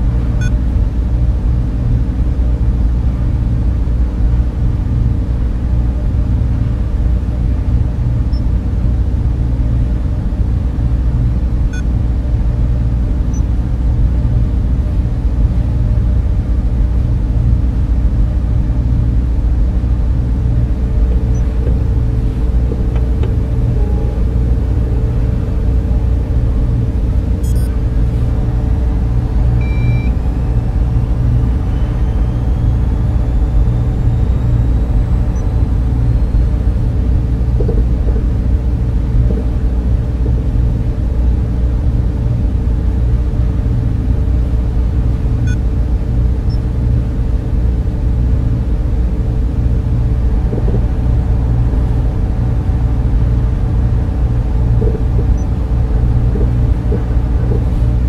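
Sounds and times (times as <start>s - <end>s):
deep machinery rumble: 0.0s - 58.0s
faint rising tones: 19.7s - 37.5s
short electronic beep: 27.4s - 27.8s, 29.6s - 30.5s.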